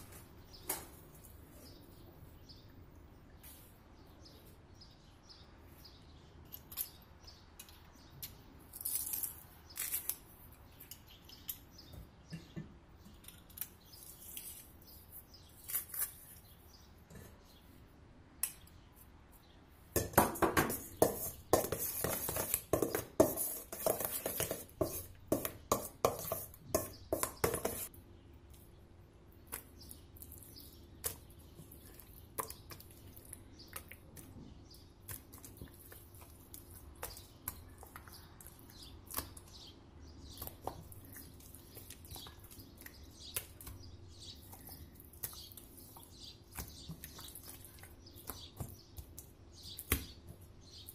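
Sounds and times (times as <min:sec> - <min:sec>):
metal spoon scraping steel bowl: 0:20.6 - 0:27.9.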